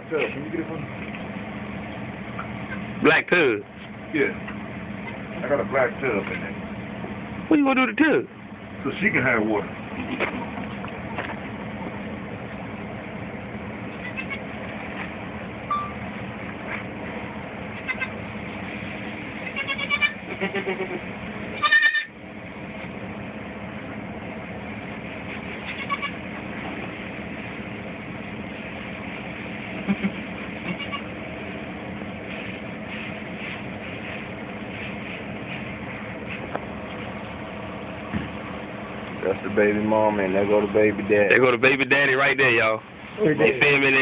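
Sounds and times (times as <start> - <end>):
low background hum: 0.0 - 44.0
goats bleating: 14.0 - 14.5, 17.8 - 18.2, 19.4 - 22.1, 25.7 - 26.2, 29.9 - 31.2.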